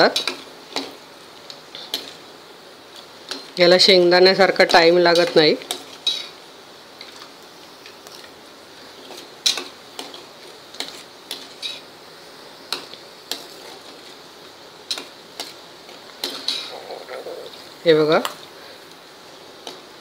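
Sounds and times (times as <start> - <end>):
faint frying sizzle: 0.0 - 20.0.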